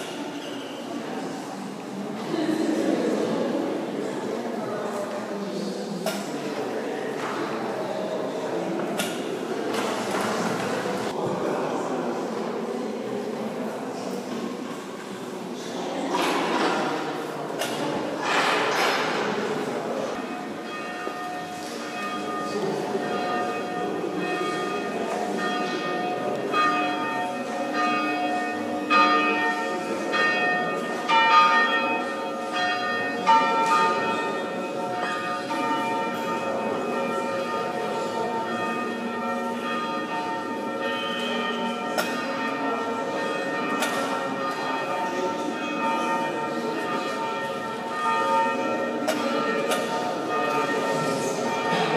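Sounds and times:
church bells ringing in a peal: 0:15.8 - 0:51.9.

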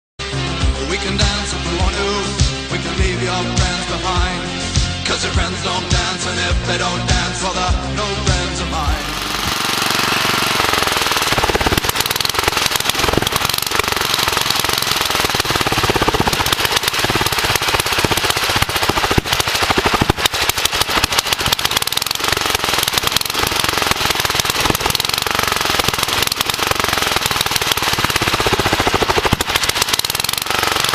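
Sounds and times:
engine exhaust popping loudly: 0:08.9 - 0:30.9.

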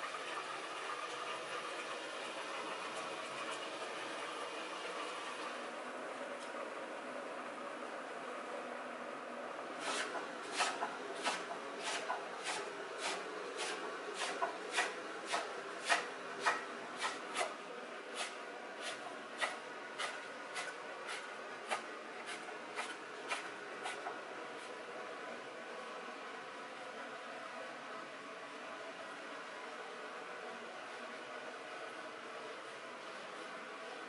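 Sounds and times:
knife chopping on wooden board: 0:09.9 - 0:17.5, 0:18.2 - 0:24.1.

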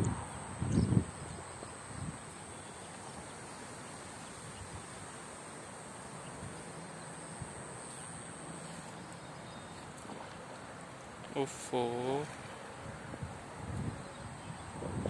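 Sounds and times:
background hiss: 0:00.0 - 0:15.0.

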